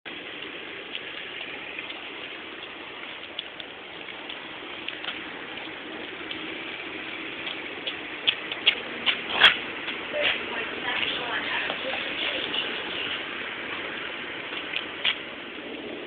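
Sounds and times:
steady outdoor hiss: 0.1s - 16.0s
faint ticks: 0.4s - 6.5s.

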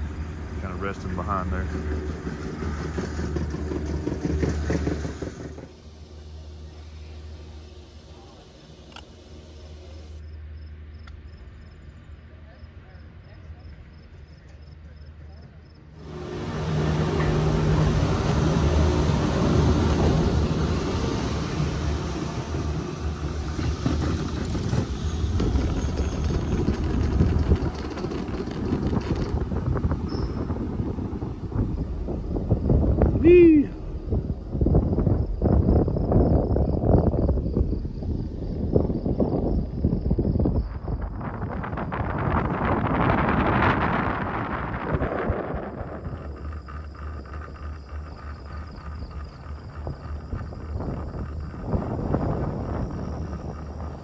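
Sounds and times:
chairlift cable rumbling: 0.0s - 10.2s, 16.0s - 54.0s
wind buffeting microphone: 16.0s - 54.0s.

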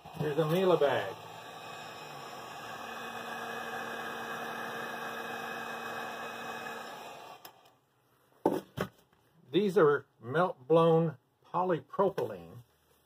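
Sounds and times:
heat gun fan hissing: 0.0s - 7.7s.

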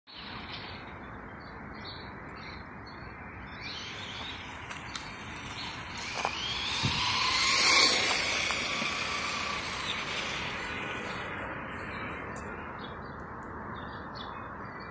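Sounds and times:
birds chirping: 0.1s - 14.9s
vehicle passing by: 3.8s - 12.3s.

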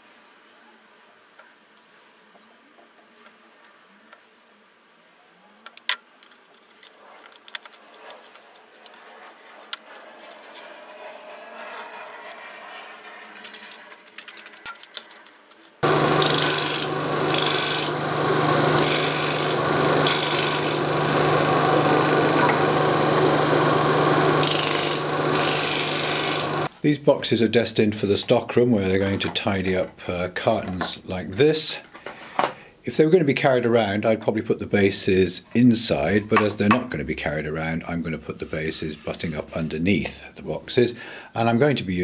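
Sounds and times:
disc sander running: 15.8s - 26.7s
wood rasping against sanding disc: 15.8s - 26.7s.

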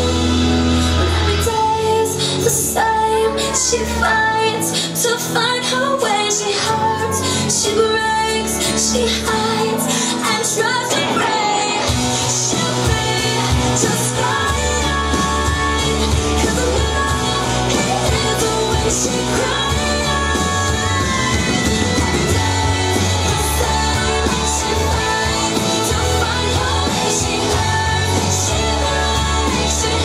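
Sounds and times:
heavy bass: 0.0s - 3.1s, 11.8s - 30.0s
pop-rock song with singing: 0.0s - 30.0s.

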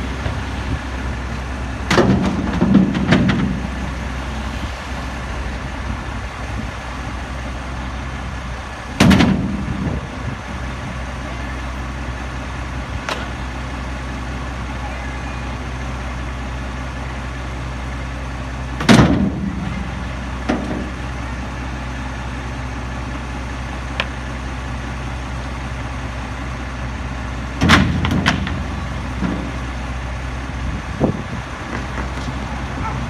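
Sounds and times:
trash carts banging: 0.0s - 10.3s, 18.7s - 21.3s, 27.4s - 30.5s
garbage truck idling: 0.0s - 33.0s
trash carts knocking: 1.8s - 4.0s, 8.9s - 10.1s, 18.8s - 21.1s, 27.6s - 29.7s.

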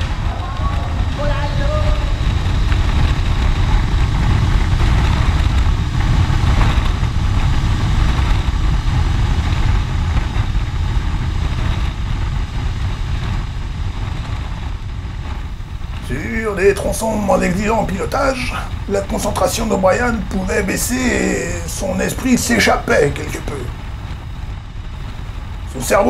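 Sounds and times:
wind rushing on microphone: 0.0s - 26.0s.

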